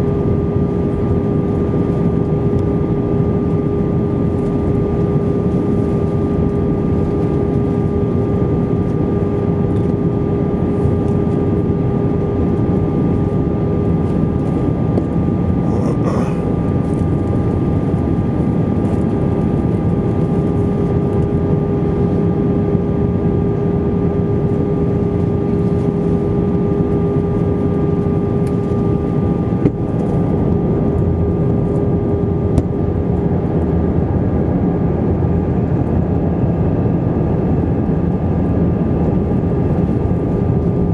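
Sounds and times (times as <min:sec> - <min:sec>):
aircraft cabin engine rush: 0:00.0 - 0:40.9
constant tonal whine: 0:00.0 - 0:40.9.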